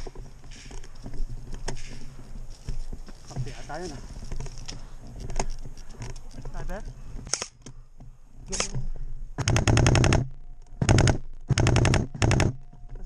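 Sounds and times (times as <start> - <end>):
airsoft rifle firing bursts: 9.4 - 12.6.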